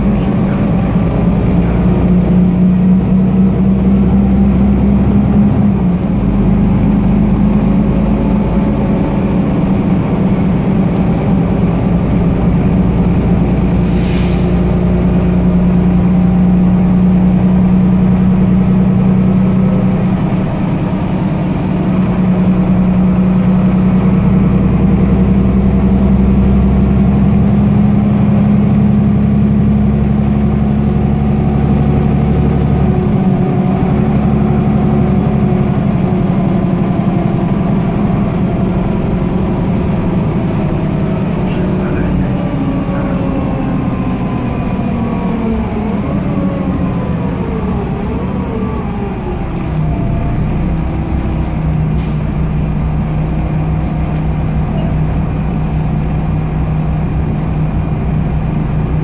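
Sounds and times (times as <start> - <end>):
bus engine hum: 0.0 - 59.0
road rumble: 0.0 - 59.0
brief hiss: 13.8 - 14.8.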